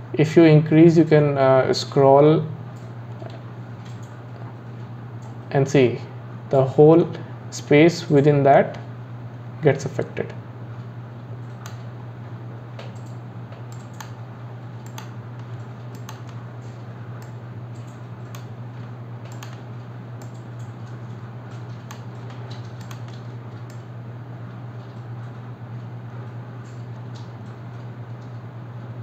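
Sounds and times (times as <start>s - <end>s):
steady low hum: 0.0s - 29.0s
computer keyboard clicks: 12.8s - 14.2s, 14.8s - 16.4s, 17.2s - 18.5s, 19.2s - 19.6s, 21.6s - 23.8s.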